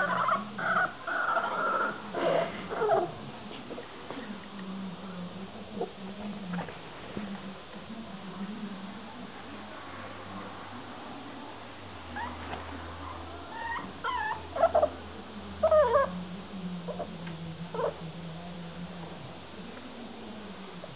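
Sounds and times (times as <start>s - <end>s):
puppy whining: 0.0s - 3.2s, 12.1s - 15.0s, 15.6s - 16.2s, 17.7s - 18.0s.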